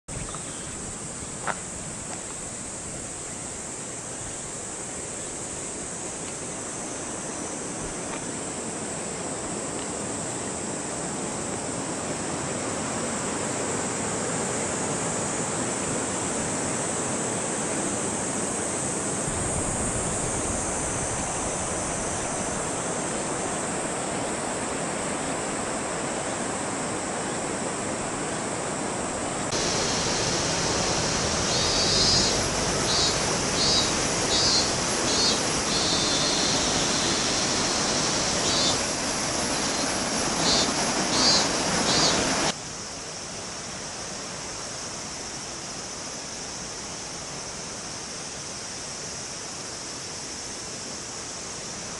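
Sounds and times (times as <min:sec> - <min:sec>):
steady outdoor rushing noise: 0:00.8 - 0:42.9
short high chirping calls: 0:31.5 - 0:38.9, 0:39.6 - 0:42.3.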